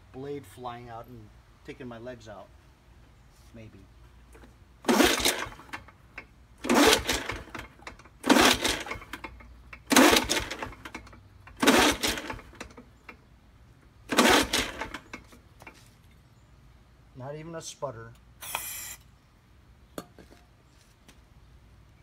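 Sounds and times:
recoil starter pulls: 4.3s - 13.2s, 14.0s - 15.8s
engine cranking whir: 4.8s - 13.2s, 14.0s - 15.4s, 18.4s - 19.1s.

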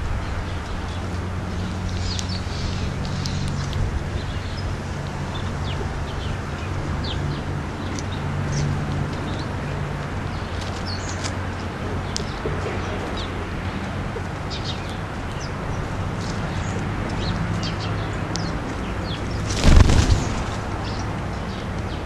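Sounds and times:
whirr of bird wings: 19.0s - 21.1s.

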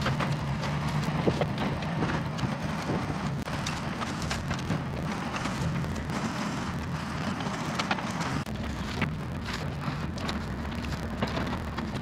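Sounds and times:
distant diesel engine rumbling: 0.0s - 12.0s
crackles and snaps: 7.5s - 12.0s.

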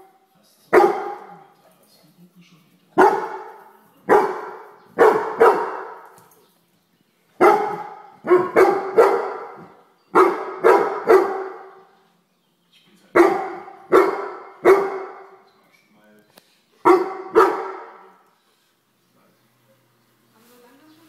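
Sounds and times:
dog barking: 0.7s - 1.4s, 3.0s - 6.1s, 7.4s - 11.8s, 13.2s - 15.4s, 16.8s - 18.2s.

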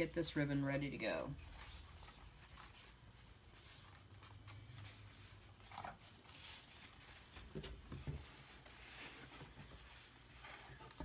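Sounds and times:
ribbon rustling: 0.0s - 11.0s.

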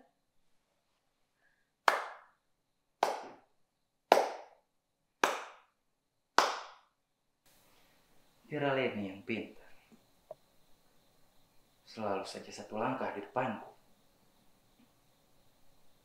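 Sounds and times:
man clapping slowly: 1.8s - 2.4s, 3.0s - 3.4s, 4.1s - 4.6s, 5.2s - 5.8s, 6.4s - 6.9s.

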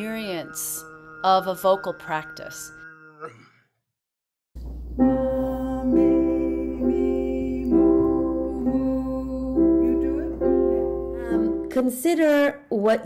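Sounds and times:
steady low hum: 4.6s - 11.7s
grand piano slow notes: 4.6s - 11.8s.

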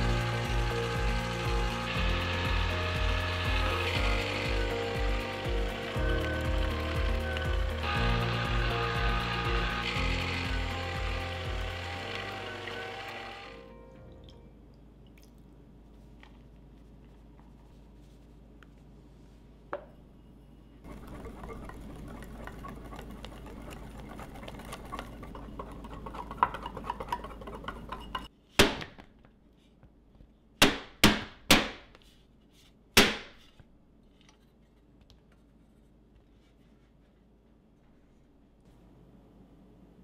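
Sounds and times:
whisk scraping in glass bowl: 20.9s - 28.3s.

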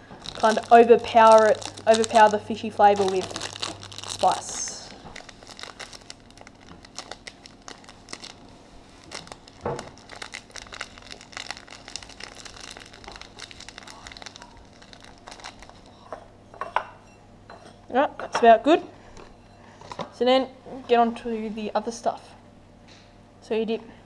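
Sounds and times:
plastic bag crinkling: 0.0s - 16.2s.

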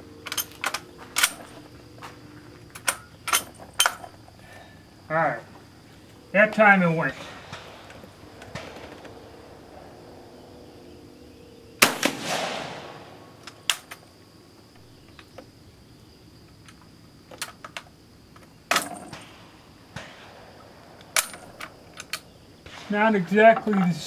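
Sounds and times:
rifle shot echoing: 11.8s - 13.7s.

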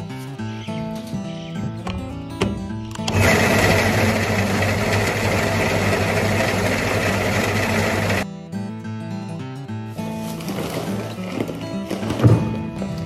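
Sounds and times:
electric auger humming: 2.8s - 8.2s
oats pouring into plastic bucket: 10.2s - 12.0s.

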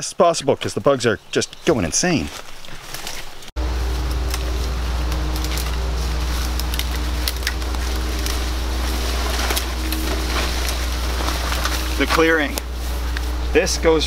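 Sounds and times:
branches and twigs cracking: 2.2s - 13.6s
steady low hum: 3.6s - 14.0s.

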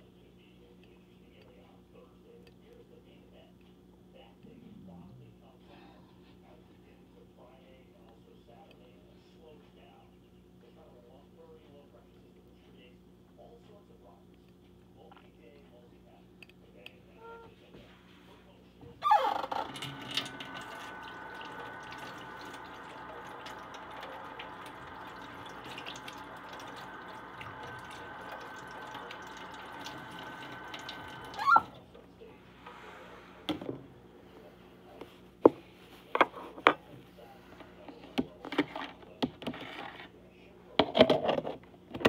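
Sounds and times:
kitchen tap running: 19.0s - 31.9s.

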